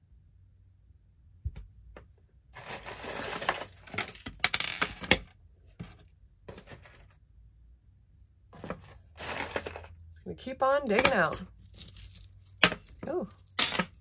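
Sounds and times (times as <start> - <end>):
jewelry clinking and jangling: 2.6 - 5.2, 8.4 - 10.0, 10.6 - 14.0.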